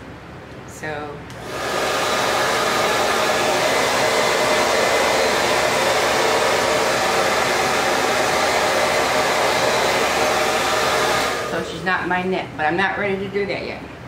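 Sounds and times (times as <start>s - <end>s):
hair dryer blowing air: 1.3s - 12.0s.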